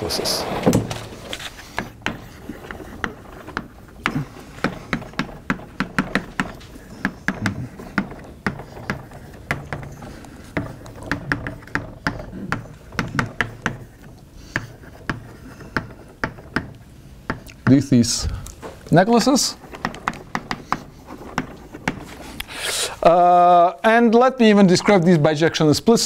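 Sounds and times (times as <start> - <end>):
chalk tapping on blackboard: 3.0 - 17.8.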